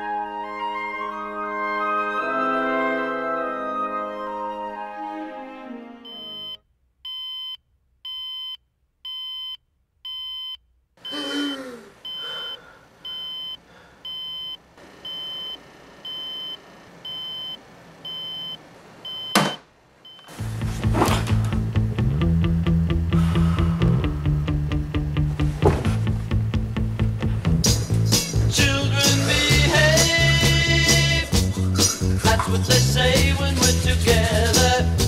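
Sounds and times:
alarm clock beeping: 6.0s - 11.2s, 12.0s - 20.3s.

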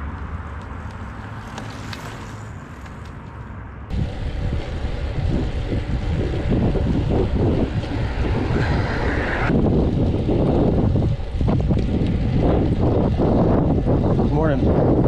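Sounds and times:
wind buffeting microphone: 3.9s - 15.0s.

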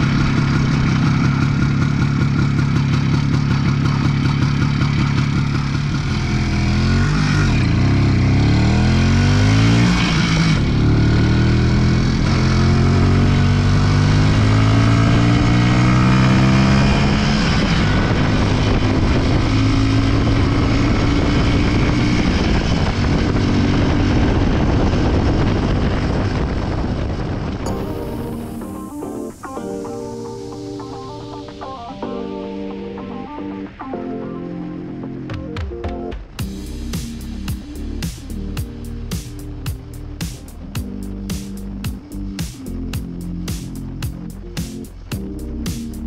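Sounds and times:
two-stroke motorcycle engine revving: 0.0s - 29.4s, 36.4s - 46.0s.

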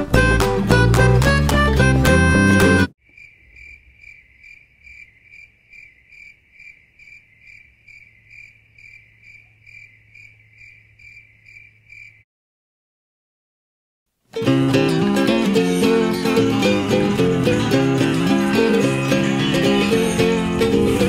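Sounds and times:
cricket chirping: 3.0s - 12.2s.

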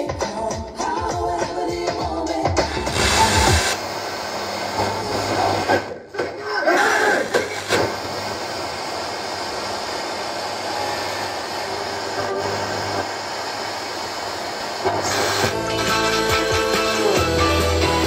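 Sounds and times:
radio static hiss: 2.7s - 6.1s, 6.8s - 17.2s.

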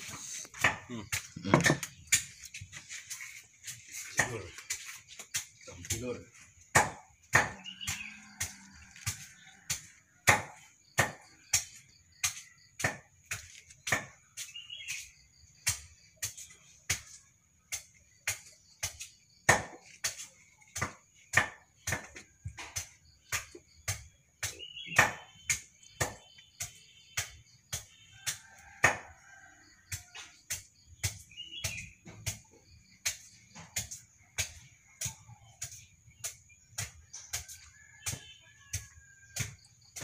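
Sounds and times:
sharp knocks: 0.6s - 2.3s, 6.7s - 14.2s, 17.7s - 29.1s.

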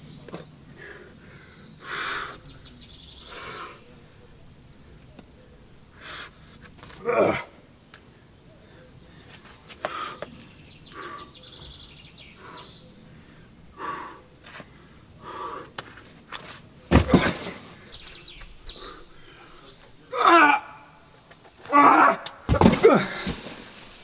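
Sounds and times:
shoes and hands scuffing rock: 15.8s - 18.0s, 22.5s - 24.0s.

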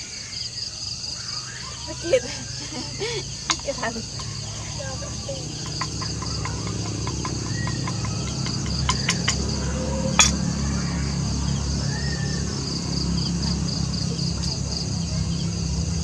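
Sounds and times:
crickets chirping: 0.0s - 16.0s
cutlery clicking on dishes: 5.6s - 9.4s, 10.2s - 10.4s.

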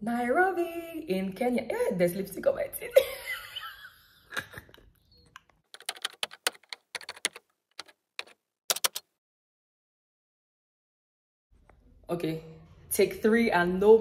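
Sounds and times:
typing key clicks: 5.8s - 9.1s.

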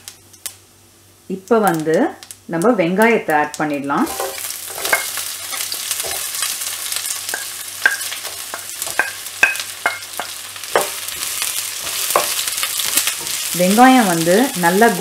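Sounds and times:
onions sizzling in hot oil: 0.0s - 15.0s
spatula clinking against pan: 7.3s - 11.0s.

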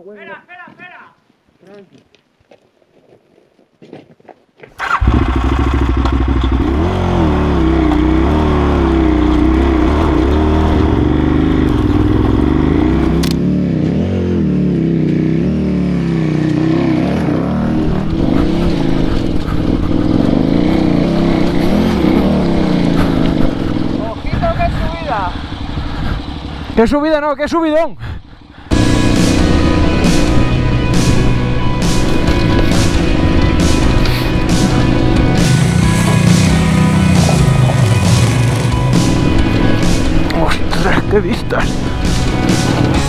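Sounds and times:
motorcycle engine revving: 4.8s - 27.1s, 28.3s - 43.0s.

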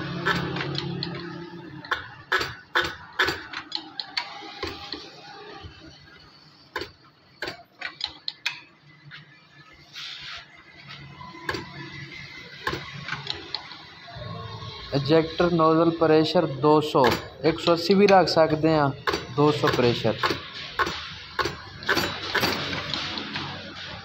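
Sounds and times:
sharp metallic clicks and knocks: 0.2s - 5.0s, 6.7s - 8.8s, 12.6s - 13.8s, 17.0s - 17.4s, 19.0s - 24.0s.

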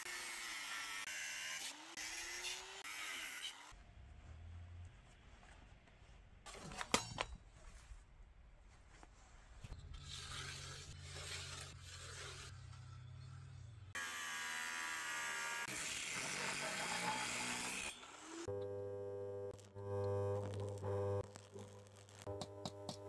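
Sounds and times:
low steady hum: 18.5s - 21.4s.

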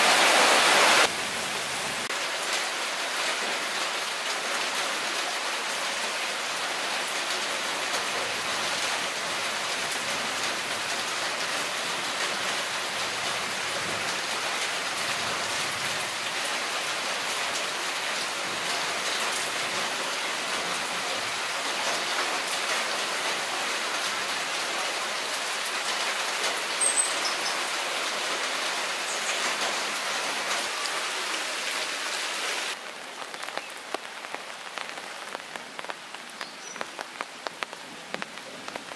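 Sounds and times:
rain falling through trees: 0.0s - 38.9s
rain on open water: 0.0s - 38.9s.

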